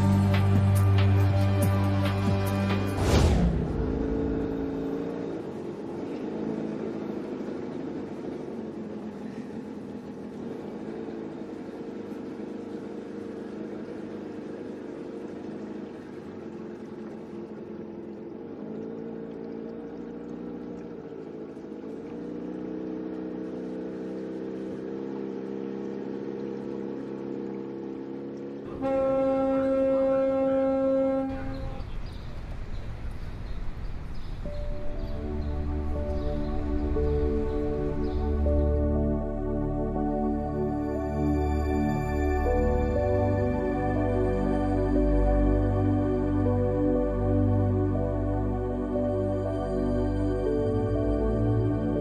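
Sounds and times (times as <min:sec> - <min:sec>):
steady traffic: 0:00.0 - 0:52.0
low boat horn blast: 0:28.6 - 0:32.2, 0:35.0 - 0:52.0
car horns: 0:28.7 - 0:32.0.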